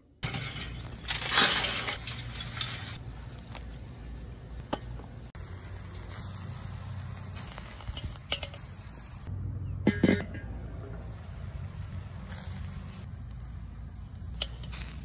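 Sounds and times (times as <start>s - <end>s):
charcoal rattling onto grill grate: 0.2s - 3.0s, 5.6s - 9.2s, 14.1s - 15.0s
charcoal hissing: 0.2s - 3.9s, 5.4s - 9.3s, 11.0s - 15.0s.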